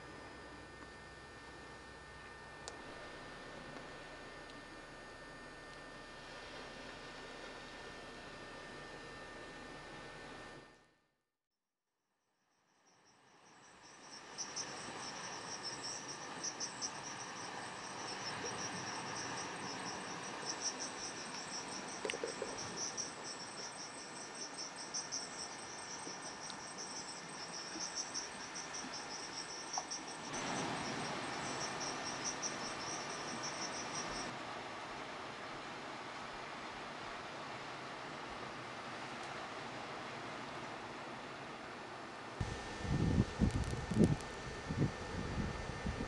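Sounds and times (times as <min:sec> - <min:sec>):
crickets chirping: 0:12.4 - 0:34.3
background hiss: 0:12.8 - 0:46.0.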